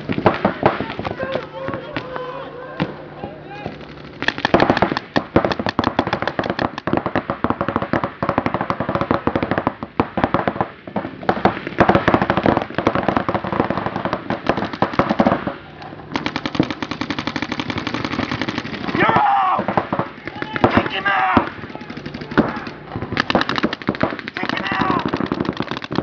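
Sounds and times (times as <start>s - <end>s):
paintball markers firing: 3.7s - 9.6s, 11.2s - 15.5s, 16.2s - 26.0s.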